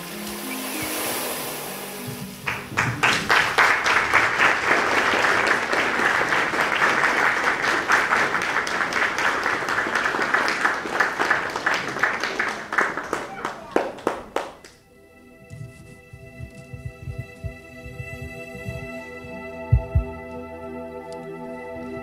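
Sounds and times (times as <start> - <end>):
music: 0.0 - 9.2, 12.3 - 22.0
audience applause: 2.3 - 14.8.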